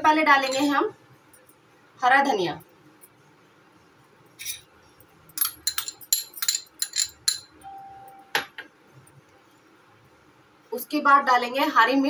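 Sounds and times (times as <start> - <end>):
spoon clinking on ceramic bowls: 0.4 - 0.8, 5.3 - 8.3.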